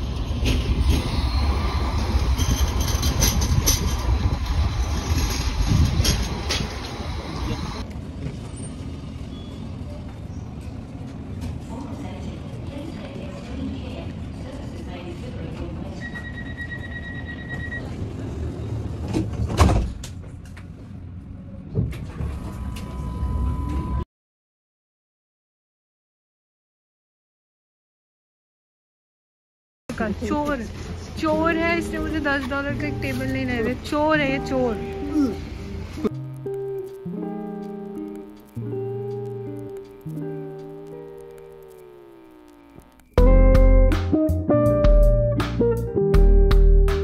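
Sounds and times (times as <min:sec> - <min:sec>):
tram wheels rumbling on rails: 0:00.0 - 0:24.0, 0:29.9 - 0:36.2
sliding doors closing with knock: 0:19.0 - 0:20.4
steady whine: 0:34.4 - 0:43.7.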